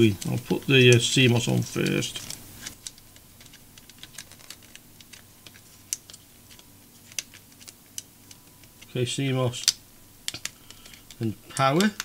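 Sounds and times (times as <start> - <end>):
small faint clicks and taps: 9.6 - 12.0.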